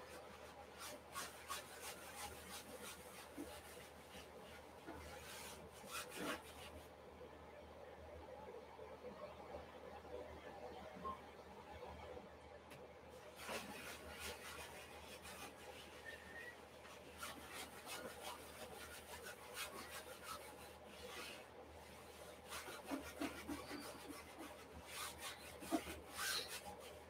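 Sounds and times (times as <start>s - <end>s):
paint scrubbed onto canvas: 13.4s - 27.0s.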